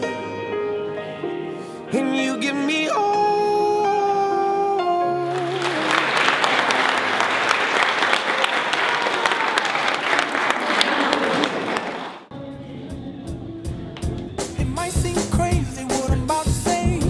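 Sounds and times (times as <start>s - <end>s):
crowd applauding: 5.3s - 12.3s.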